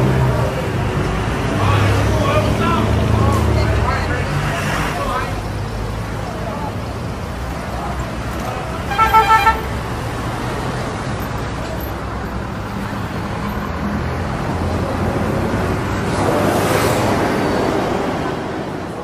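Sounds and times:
street traffic: 0.0 - 19.0
car horn toots: 8.9 - 9.8.

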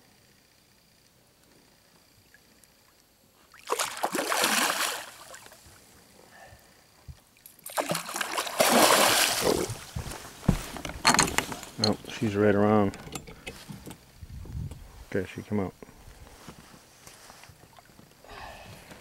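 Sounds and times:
fish splashing at surface: 3.6 - 5.5, 7.6 - 9.8.

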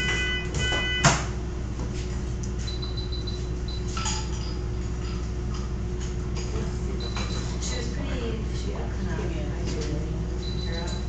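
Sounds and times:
patient monitor beeping: 0.0 - 1.3, 2.6 - 4.0, 6.9 - 7.8, 10.4 - 11.0
steady low hum: 0.0 - 11.0.

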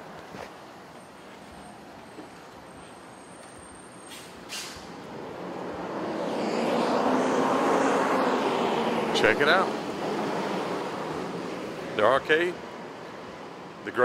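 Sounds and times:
hum of traffic: 0.0 - 14.0
short sharp hiss: 4.1 - 4.9
vehicle approaching: 4.2 - 14.0.

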